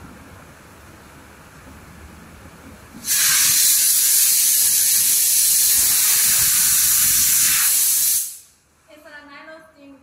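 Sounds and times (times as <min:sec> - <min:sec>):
steam gun hissing: 0:03.0 - 0:08.6.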